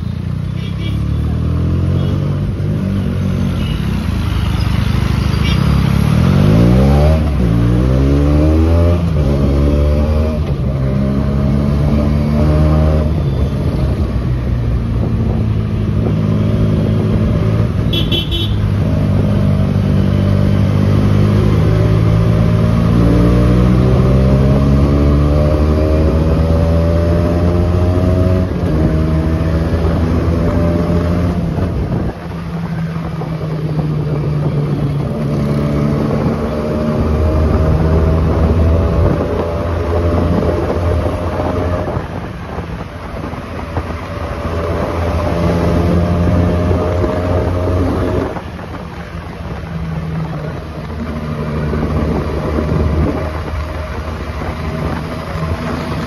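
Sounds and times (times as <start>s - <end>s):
road noise: 0.0s - 56.0s
motorcycle engine accelerating: 18.7s - 56.0s.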